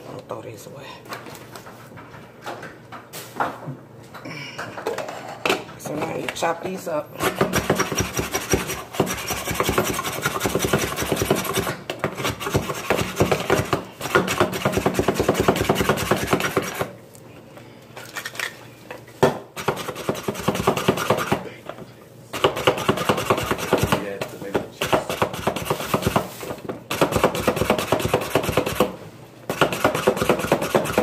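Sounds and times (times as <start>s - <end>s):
manual food chopper clacking: 26.9s - 31.0s.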